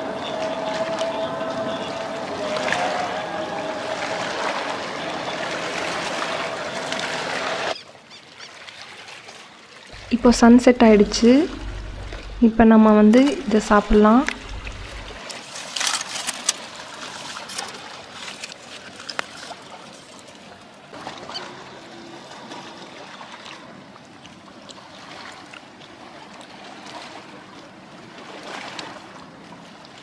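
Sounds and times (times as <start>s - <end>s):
lapping water: 0.0s - 7.8s, 8.5s - 15.4s
foil and leaf crinkling: 14.5s - 20.4s.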